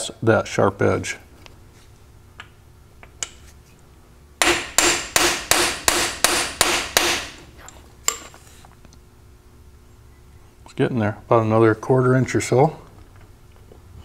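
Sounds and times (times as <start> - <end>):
hammer striking metal tool: 4.4 - 7.4.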